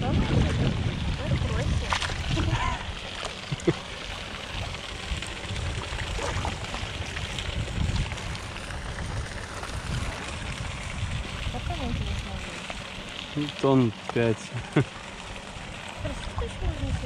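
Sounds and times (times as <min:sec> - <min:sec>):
low rumble: 0:00.0 - 0:13.5
water splashing and trickling: 0:00.0 - 0:17.0.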